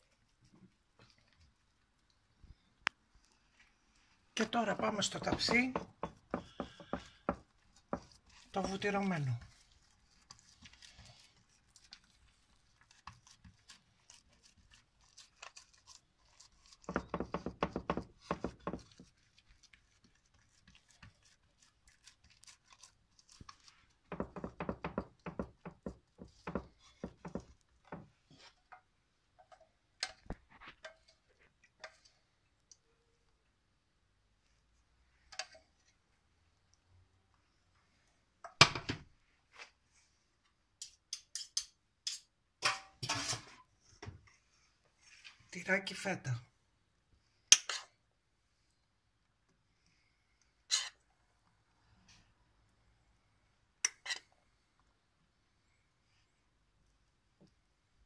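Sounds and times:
hands patting dough in metal pan: 4.4s - 32.0s.

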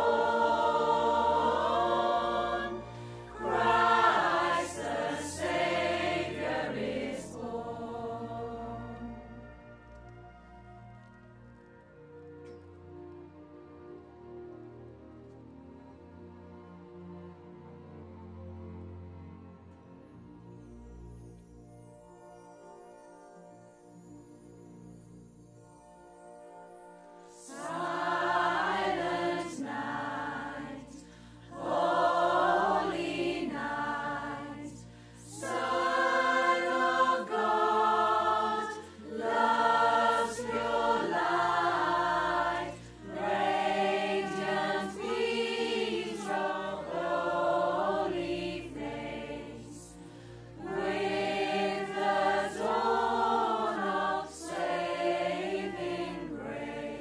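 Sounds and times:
mixed choir singing: 0.0s - 9.5s, 27.3s - 57.0s.

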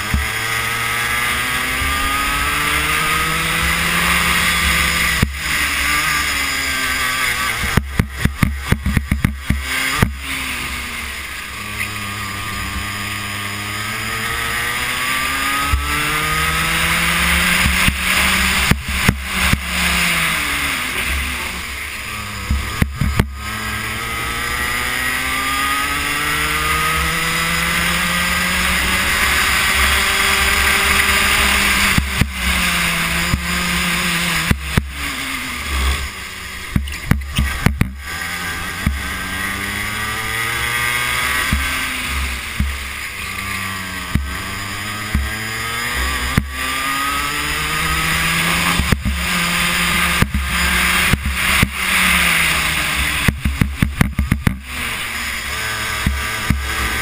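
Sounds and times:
kart engine revving: 0.0s - 57.0s
sharp knocks: 36.7s - 38.0s, 53.2s - 54.7s.

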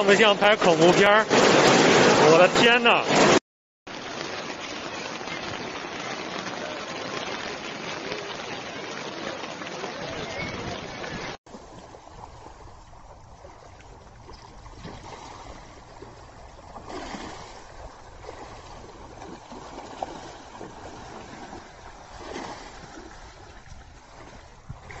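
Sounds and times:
floodwater rushing over street: 0.0s - 25.0s.

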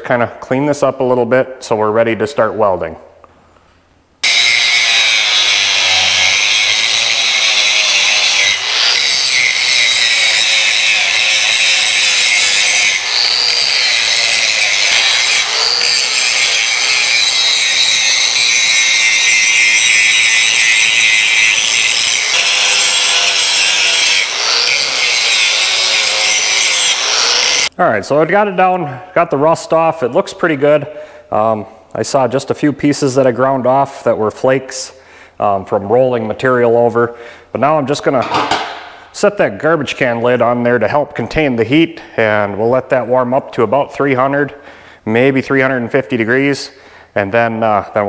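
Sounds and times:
angle grinder grinding metal: 4.2s - 27.8s.

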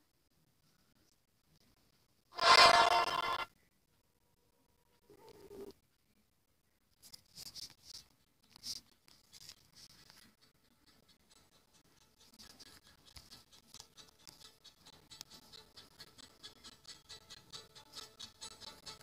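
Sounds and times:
stylus scratching touchscreen: 2.4s - 3.5s, 7.4s - 19.0s.

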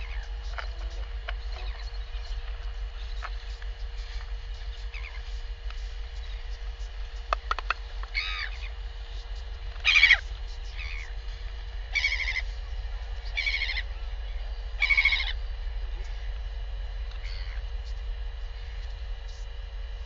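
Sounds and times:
albatross calling: 0.0s - 5.4s, 6.2s - 15.4s, 17.2s - 17.7s.

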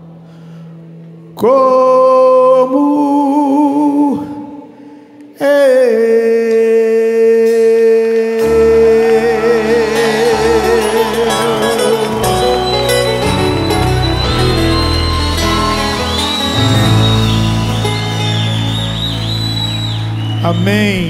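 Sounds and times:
person singing with vibrato: 5.4s - 14.4s
low bass: 8.4s - 21.0s.

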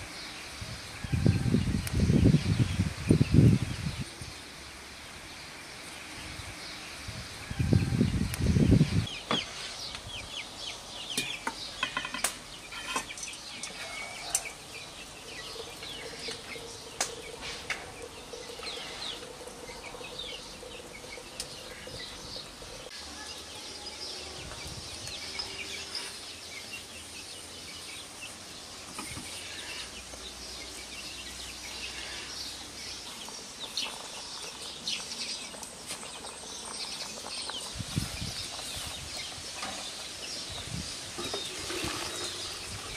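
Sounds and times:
small birds chirping: 0.0s - 42.9s
chickens clucking: 12.8s - 23.0s.

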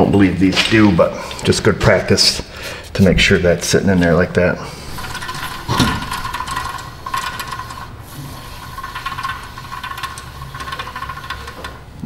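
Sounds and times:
wheel bearing grinding rattle: 4.8s - 12.0s.

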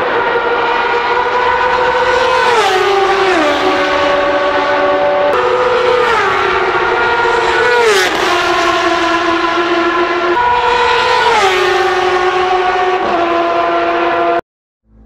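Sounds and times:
race cars passing at speed: 0.0s - 14.4s.

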